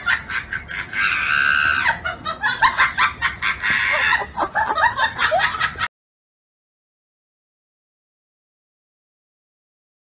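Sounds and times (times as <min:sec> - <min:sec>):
high-pitched cackling laughter: 0:00.0 - 0:05.9.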